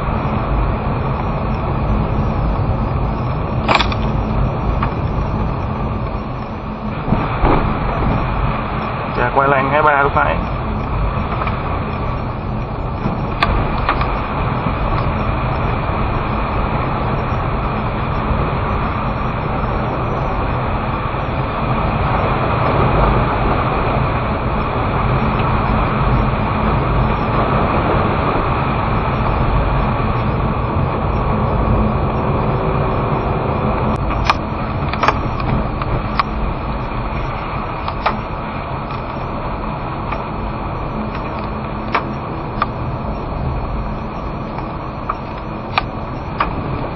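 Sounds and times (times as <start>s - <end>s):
car engine rumble: 0.0s - 46.9s
sharp clicks: 3.6s - 5.2s.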